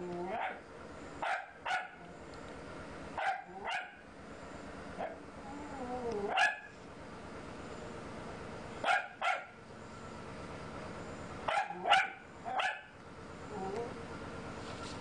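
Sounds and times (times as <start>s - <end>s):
dog barking: 0.3s - 0.6s, 1.2s - 2.0s, 3.2s - 4.0s, 5.0s - 5.2s, 6.3s - 6.7s, 8.8s - 9.6s, 11.5s - 12.9s.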